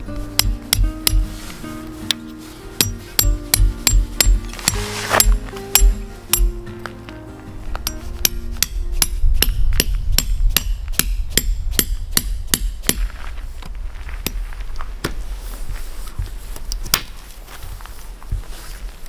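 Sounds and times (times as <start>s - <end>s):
hammer striking steel tent peg: 0.0s - 1.4s, 2.8s - 6.6s, 7.8s - 13.0s.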